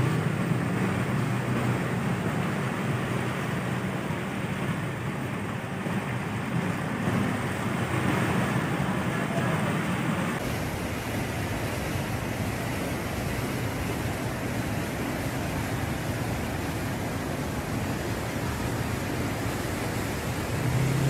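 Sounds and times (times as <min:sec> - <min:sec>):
steady rushing noise: 0:00.0 - 0:21.0
water surging and splashing: 0:00.0 - 0:21.0
car engine hum: 0:14.9 - 0:21.0.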